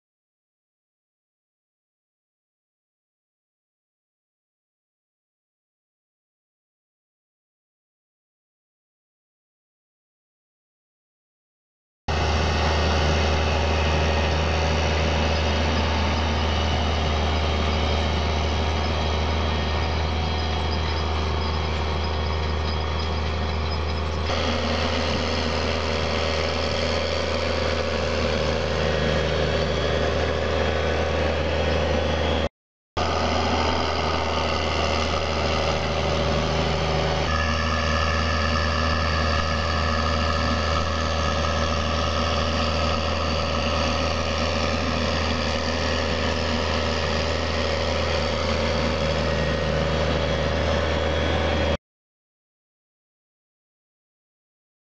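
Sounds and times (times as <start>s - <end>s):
tractor diesel engine droning: 12.1s - 51.8s.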